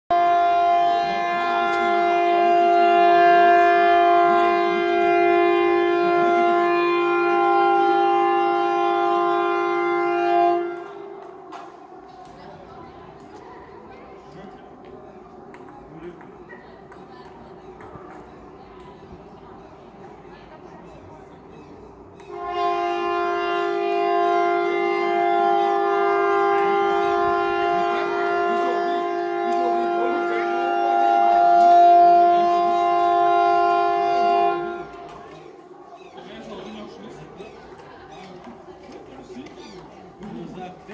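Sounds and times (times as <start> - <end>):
air raid siren steady tone: 0.1 - 16.2, 22.3 - 37.4.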